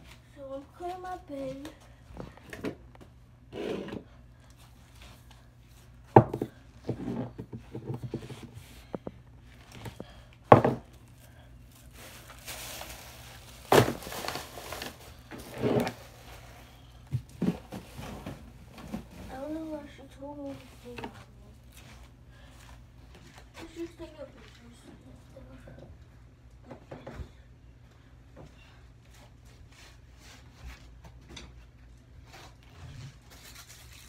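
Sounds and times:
bedding rustling: 11.6s - 24.8s.

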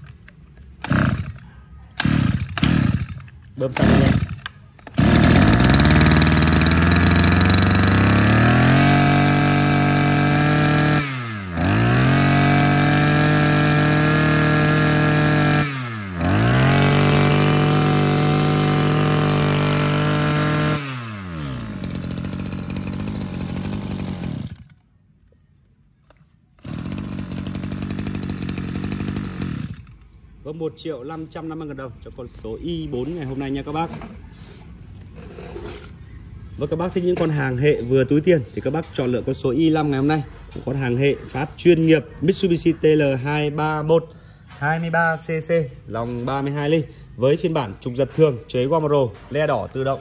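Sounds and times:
brush cutter engine revving: 0.8s - 24.8s, 26.6s - 30.1s.

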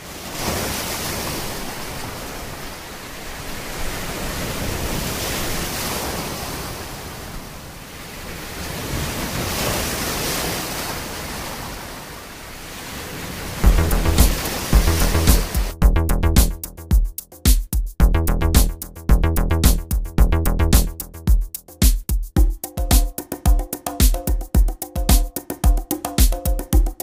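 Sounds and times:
waves washing in: 0.0s - 15.8s.

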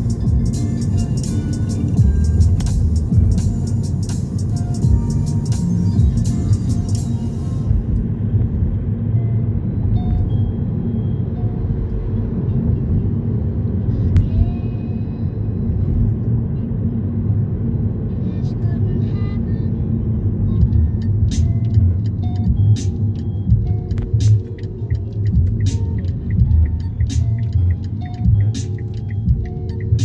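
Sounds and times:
car engine and tyres rumbling: 0.0s - 30.0s.

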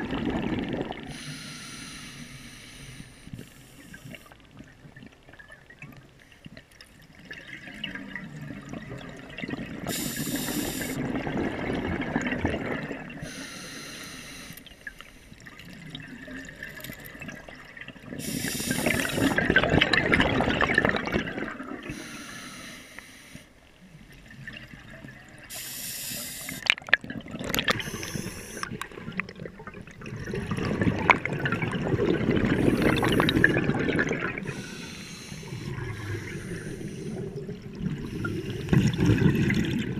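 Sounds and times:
exhaled bubbles burbling: 0.0s - 1.2s, 4.0s - 13.3s, 15.4s - 22.0s, 26.5s - 39.9s
regulator inhale hiss: 1.1s - 4.3s, 9.9s - 11.0s, 13.2s - 15.4s, 18.2s - 19.4s, 21.9s - 23.6s, 25.5s - 26.6s, 27.8s - 28.8s, 34.4s - 37.4s.

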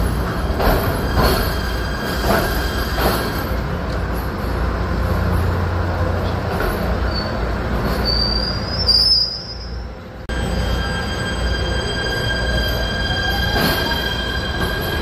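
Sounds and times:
subway train rumble: 0.0s - 15.0s
high wheel squeal: 6.7s - 15.0s.

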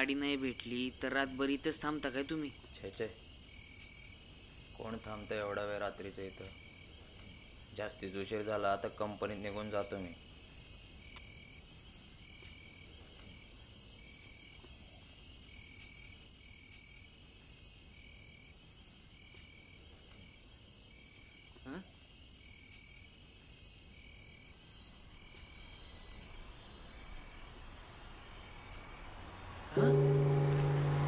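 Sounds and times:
crickets trilling: 0.0s - 31.0s
short pulsed chirp: 23.5s - 31.0s
brief rising sound: 28.6s - 31.0s.

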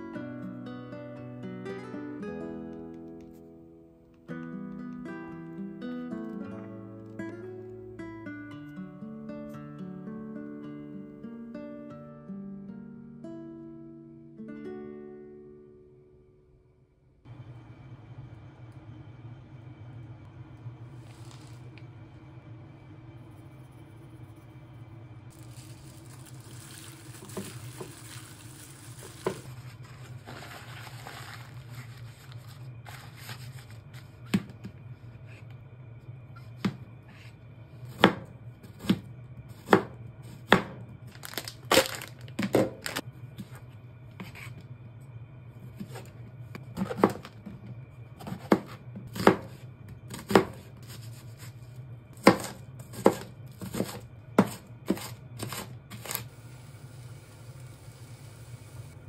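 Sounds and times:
low hum: 16.4s - 59.0s.

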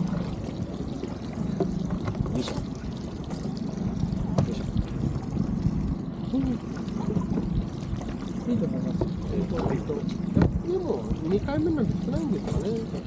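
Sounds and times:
boat motor droning: 0.0s - 13.0s
water and hull noise: 0.0s - 13.0s.

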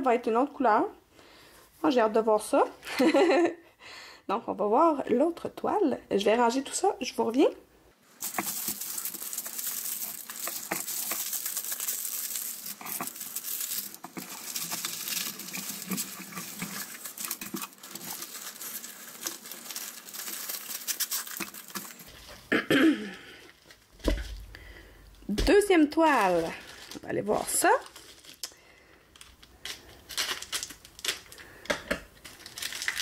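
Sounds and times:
plastic film crinkling: 8.1s - 22.5s, 25.3s - 33.0s.

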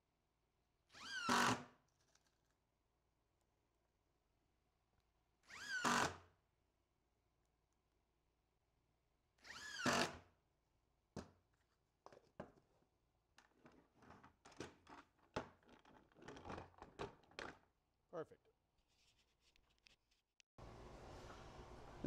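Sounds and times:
wooden cart knocks and scrapes: 13.5s - 17.6s.

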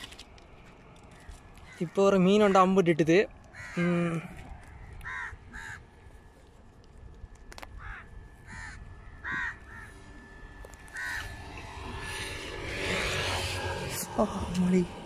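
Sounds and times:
crows cawing: 1.1s - 2.6s, 3.4s - 6.2s, 7.6s - 12.0s.

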